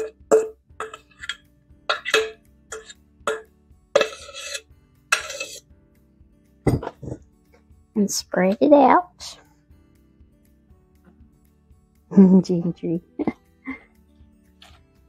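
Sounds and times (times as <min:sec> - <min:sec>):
spoon knocking on metal bowl: 0:00.0 - 0:04.4.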